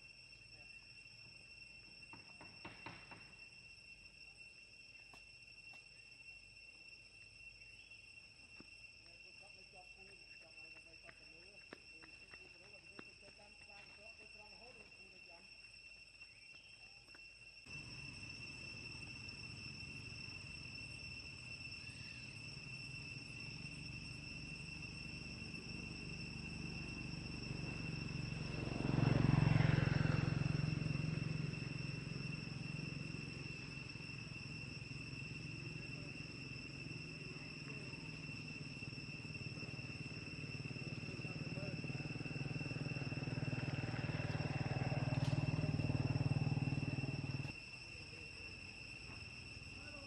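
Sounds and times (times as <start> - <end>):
insects trilling: 0.0 - 50.0.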